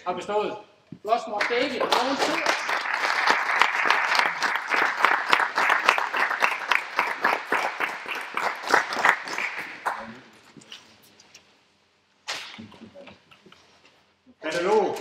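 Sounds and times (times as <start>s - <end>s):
audience applauding: 1.4s - 10.2s.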